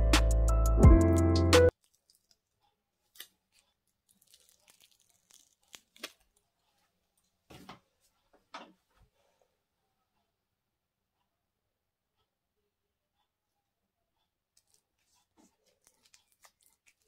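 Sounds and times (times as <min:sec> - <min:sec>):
adhesive backing peeling crackles: 0:01.7 - 0:06.7, 0:14.6 - 0:17.0.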